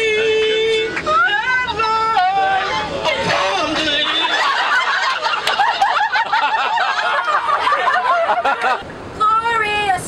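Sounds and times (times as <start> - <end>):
woman singing: 0.0 - 4.1
group of people laughing: 3.3 - 8.8.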